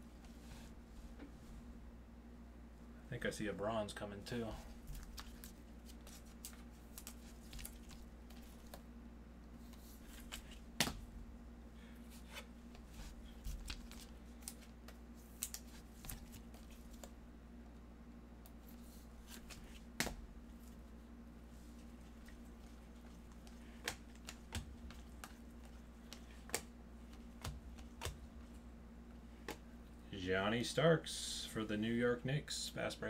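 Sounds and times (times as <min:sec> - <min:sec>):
cards clicking and rustling: 0:04.9 - 0:08.8, 0:09.6 - 0:11.0, 0:12.2 - 0:17.1, 0:22.2 - 0:28.6.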